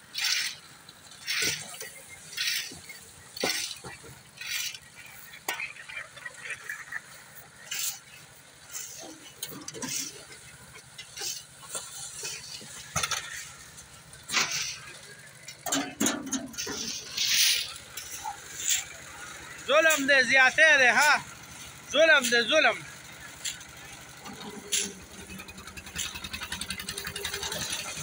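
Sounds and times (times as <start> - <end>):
concrete mixer rumbling: 0.0 - 28.0
gravel shovelled into hopper: 0.1 - 0.6, 1.2 - 4.9, 7.6 - 15.7, 16.3 - 23.6.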